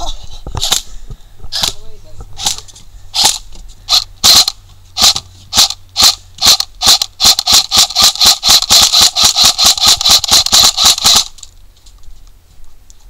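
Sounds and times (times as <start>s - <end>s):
airsoft rifle shots snapping: 1.6s - 1.8s, 3.2s - 11.5s.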